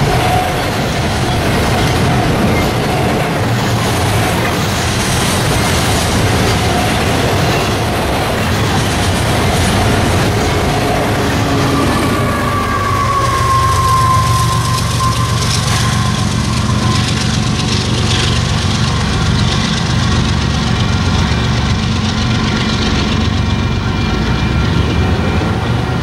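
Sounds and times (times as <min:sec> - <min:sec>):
locomotive engine rumble: 0:00.0 - 0:26.0
wheel-on-rail noise: 0:00.0 - 0:26.0
high falling tone: 0:08.8 - 0:18.0.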